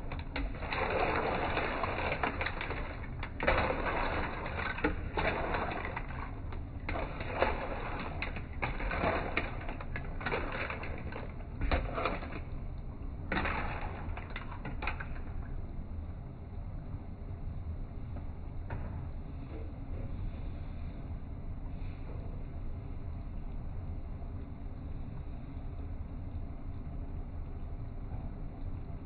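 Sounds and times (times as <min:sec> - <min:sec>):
clams clattering against a wok: 0:00.0 - 0:12.5, 0:13.3 - 0:15.4.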